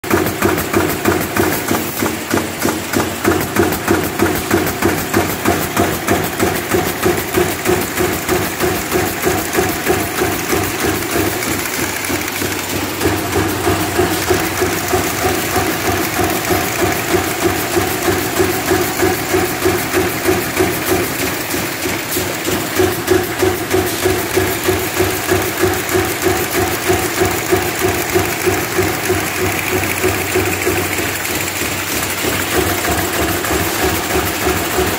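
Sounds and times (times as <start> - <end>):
machinery clatter: 0.0 - 34.9
regular pulsing machine beat: 3.4 - 33.0
steady machine hum: 7.6 - 34.9.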